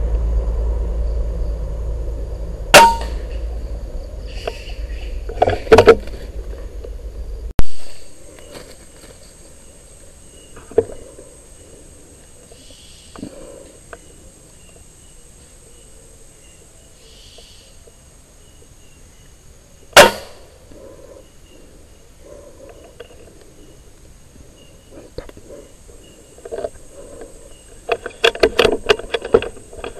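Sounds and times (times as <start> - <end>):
air rifle shots: 20.0 - 20.5.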